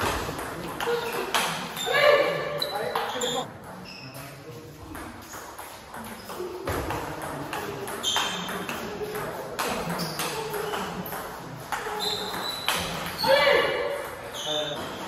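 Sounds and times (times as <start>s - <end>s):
table tennis ball pinging: 4.9s - 14.8s.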